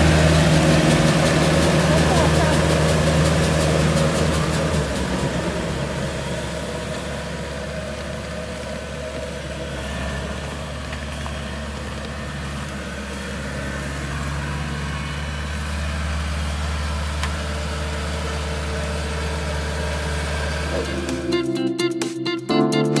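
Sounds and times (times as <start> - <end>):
diesel engine running: 0.0 - 21.6.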